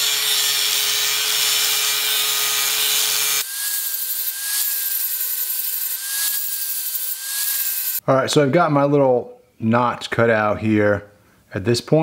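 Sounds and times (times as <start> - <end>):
angle grinder cutting steel: 0.0 - 8.0.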